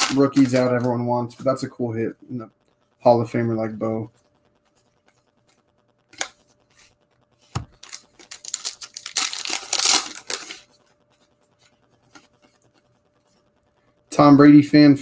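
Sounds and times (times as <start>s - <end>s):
cards scraping and rustling: 0.0s - 1.5s, 5.0s - 12.9s.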